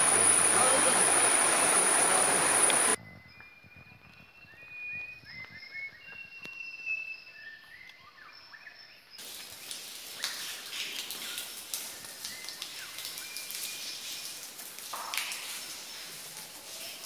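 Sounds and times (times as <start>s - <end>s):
hissy background noise: 0.0s - 3.0s
whistled bird calls: 0.0s - 9.0s.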